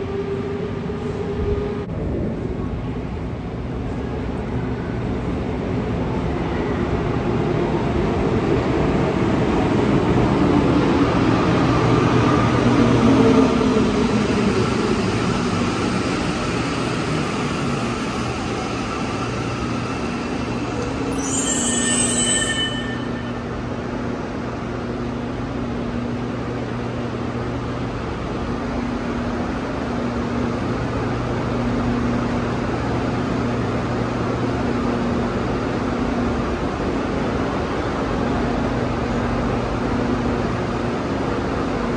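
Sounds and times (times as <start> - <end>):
train braking with motor whine: 19.5 - 23.6
brief high-pitched sound: 21.1 - 23.6.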